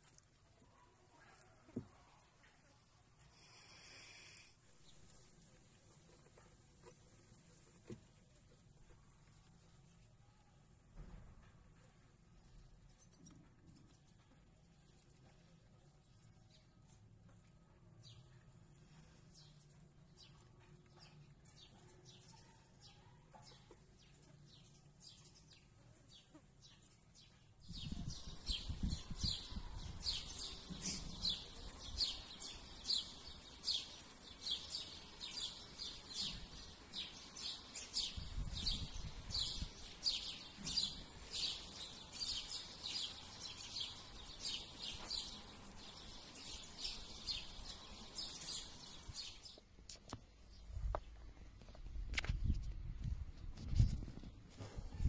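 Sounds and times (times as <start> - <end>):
small birds chirping: 12.0 - 55.0.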